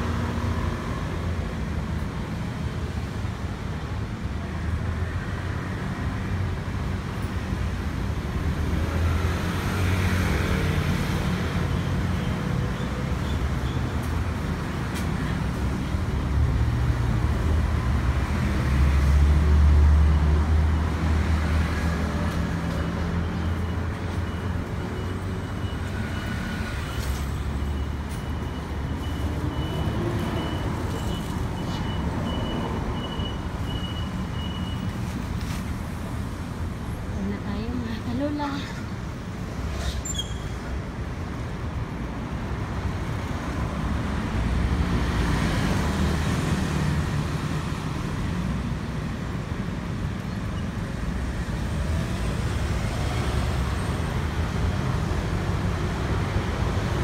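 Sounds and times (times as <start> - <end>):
passing vehicle engines rumbling: 0.0 - 57.0.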